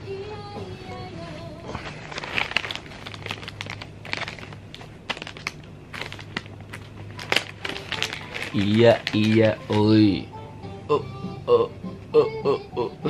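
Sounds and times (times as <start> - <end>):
plastic wrapper crinkling: 1.6 - 10.0.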